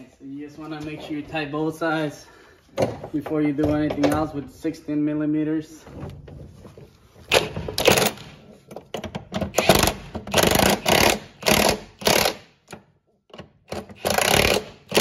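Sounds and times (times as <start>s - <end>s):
cordless ratchet bursts: 9.5s - 12.5s, 13.7s - 15.0s.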